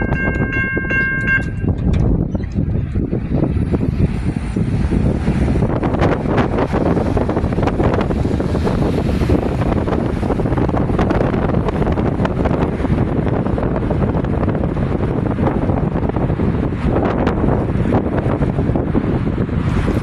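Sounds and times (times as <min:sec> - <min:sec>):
train rumble: 0:00.0 - 0:20.0
wind buffeting microphone: 0:00.0 - 0:20.0.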